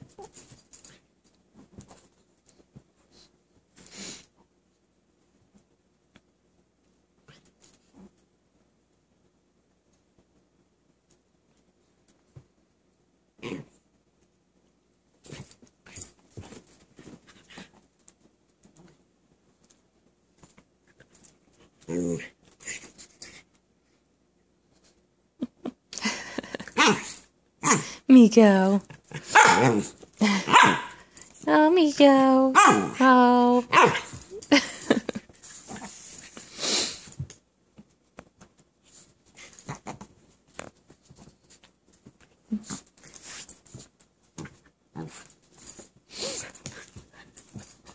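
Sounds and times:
dogs play-wrestling: 15.2s - 19.1s, 20.4s - 23.6s, 28.7s - 31.5s, 33.7s - 47.9s.

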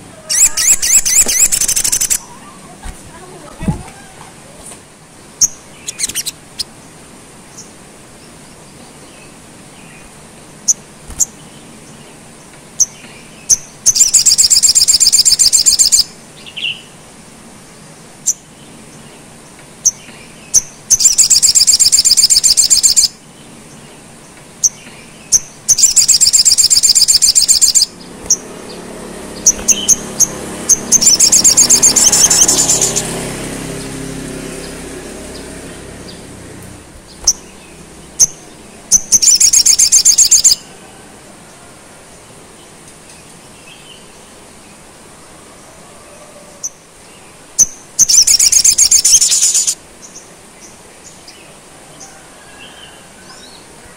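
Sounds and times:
bird high-pitched trills: 0.0s - 2.6s, 5.4s - 6.7s, 12.8s - 16.7s, 19.8s - 23.2s, 24.6s - 28.8s, 29.4s - 33.1s, 38.2s - 40.7s, 47.6s - 49.8s.

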